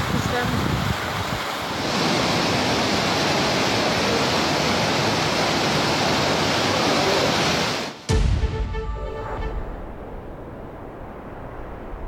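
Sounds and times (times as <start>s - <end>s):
floodwater rushing along street: 0.0s - 8.1s.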